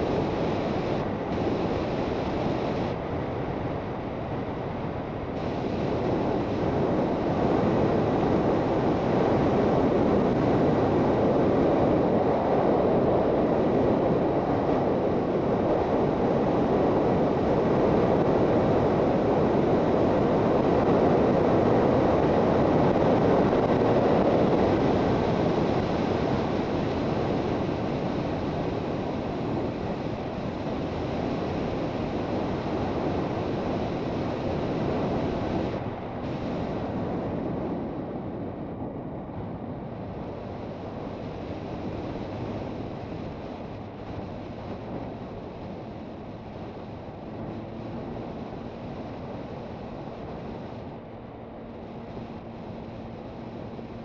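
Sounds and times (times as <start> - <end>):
wind rush over microphone: 0.0 - 54.0
road noise: 40.3 - 54.0.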